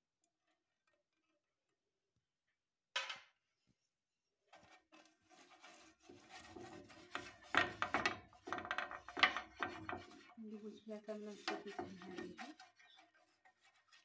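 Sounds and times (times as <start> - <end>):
hand rubbing a frying pan: 4.6 - 14.0.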